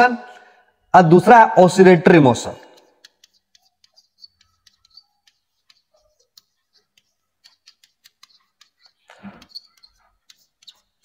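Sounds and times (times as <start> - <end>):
chalk tapping on blackboard: 2.6 - 11.0
chalk squeaks: 2.7 - 11.0.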